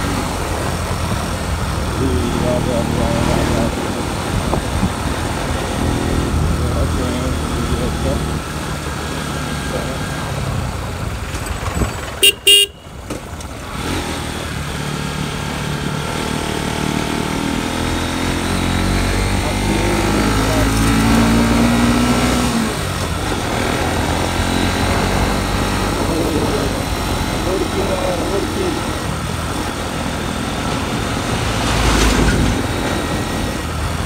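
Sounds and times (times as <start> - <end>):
motorcycle engine running: 0.0 - 34.0
horn toots: 12.2 - 13.0.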